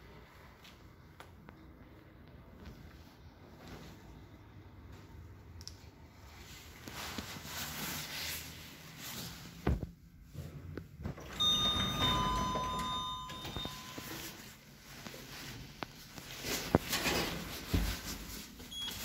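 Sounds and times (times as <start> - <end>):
steady ringing tone: 11.3 - 14.5.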